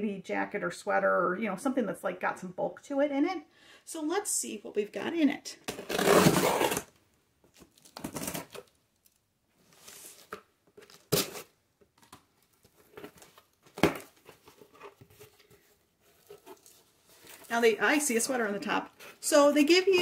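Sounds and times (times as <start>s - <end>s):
cardboard tearing and rustling: 5.7s - 6.9s, 7.6s - 8.7s, 9.8s - 11.5s, 12.8s - 17.5s.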